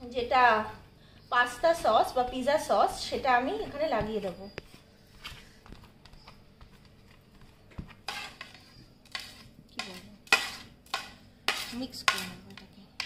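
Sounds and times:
metal spoon scraping ceramic plate: 8.1s - 12.4s.

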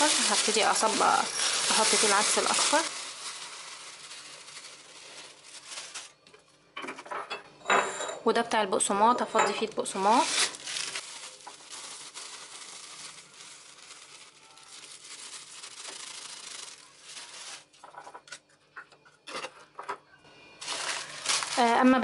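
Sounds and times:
plastic bag rustling: 0.0s - 6.2s, 9.8s - 18.2s, 20.6s - 22.0s.

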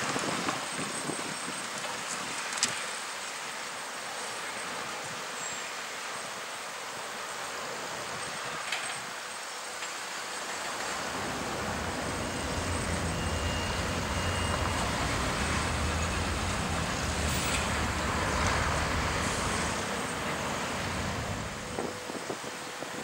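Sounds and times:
truck driving over crossing: 10.6s - 22.2s
low engine hum: 10.6s - 23.0s.

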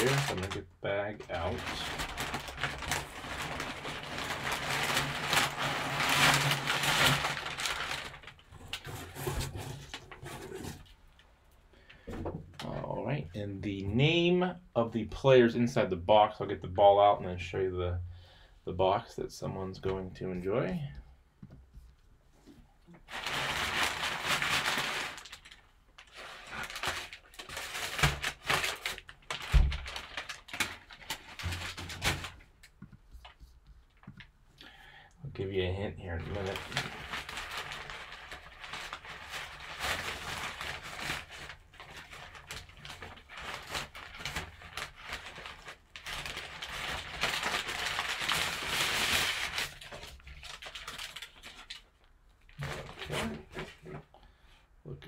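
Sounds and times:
packing paper crinkling: 0.0s - 11.0s, 23.0s - 34.3s, 36.1s - 54.0s
fabric bag rustling: 1.5s - 8.3s.

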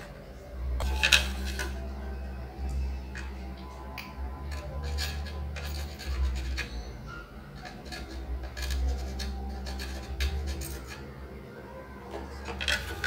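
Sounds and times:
steady low hum: 0.0s - 13.0s
tools scraping and clicking: 0.8s - 1.8s, 3.1s - 11.2s, 12.1s - 13.0s.

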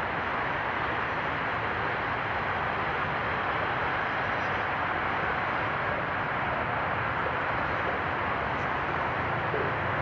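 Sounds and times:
diesel locomotive engine running: 3.4s - 10.0s.

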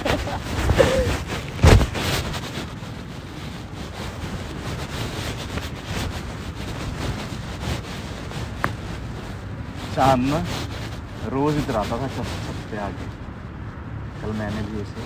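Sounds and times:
wind buffeting microphone: 0.0s - 15.0s
sharp thump: 1.6s - 2.2s.

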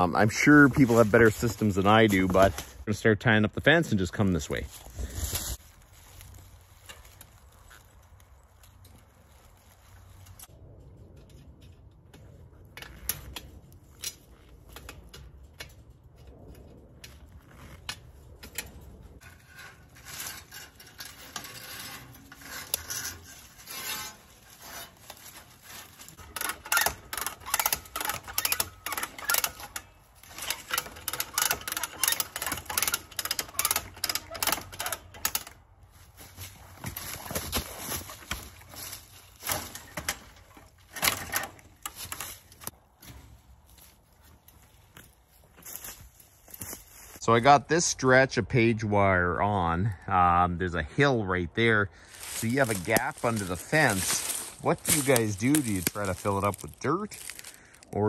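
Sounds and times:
wire fencing clicking and rattling: 10.1s - 42.8s, 52.2s - 57.8s.

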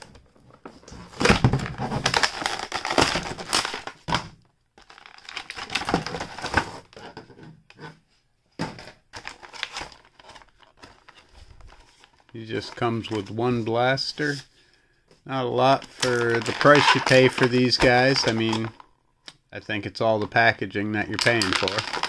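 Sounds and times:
plastic packaging crinkling: 1.1s - 4.1s, 4.8s - 6.9s, 9.1s - 13.4s, 15.6s - 18.9s, 21.0s - 22.0s.

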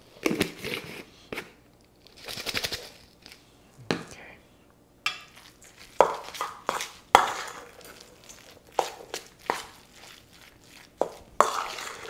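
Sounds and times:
soft scraping and mushing: 6.7s - 12.0s.

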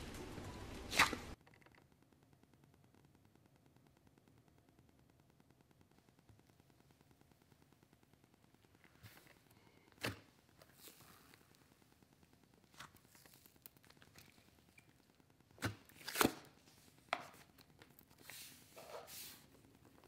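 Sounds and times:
slime popping: 10.0s - 18.2s.

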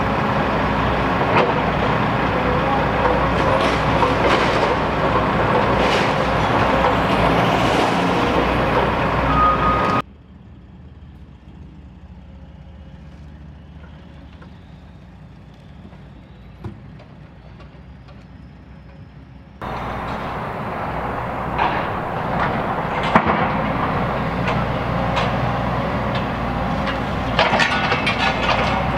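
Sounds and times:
heavy machinery running: 0.0s - 10.1s, 19.6s - 28.9s
distant rumble: 0.0s - 10.4s, 19.6s - 28.9s.

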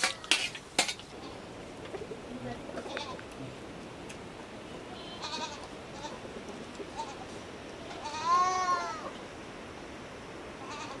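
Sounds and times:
goat bleating: 5.0s - 6.2s, 7.0s - 7.3s, 7.9s - 9.1s, 10.6s - 11.0s.

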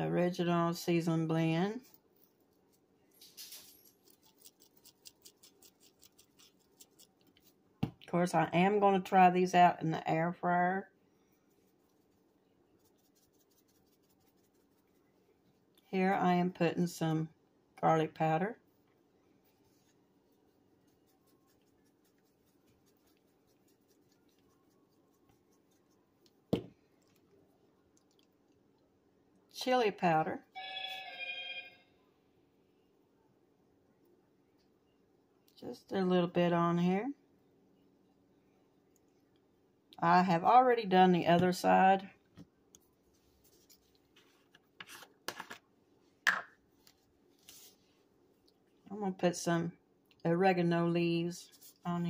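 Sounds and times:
faint hum: 0.0s - 44.8s
spice shaker rattling: 3.2s - 7.5s.

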